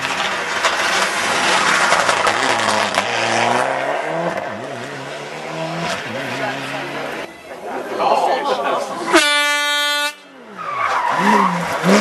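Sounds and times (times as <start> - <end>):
rally car engine accelerating: 0.0 - 7.3, 10.5 - 12.0
tyre and road noise: 0.0 - 12.0.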